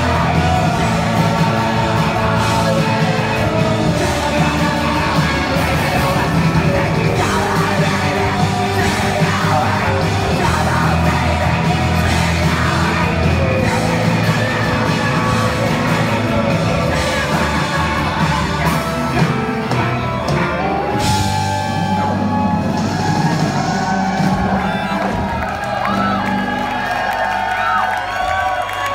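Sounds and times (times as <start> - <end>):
singer shouting and singing: 0.0 - 19.8
rock band playing live: 0.0 - 28.9.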